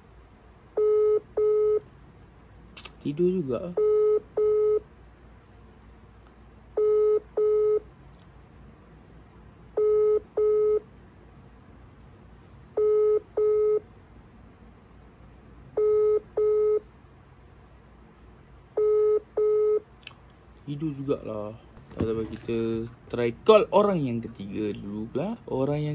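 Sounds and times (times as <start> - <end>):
telephone ringback tone: 6.8 - 7.8, 9.8 - 10.8, 12.8 - 13.8, 15.8 - 16.8.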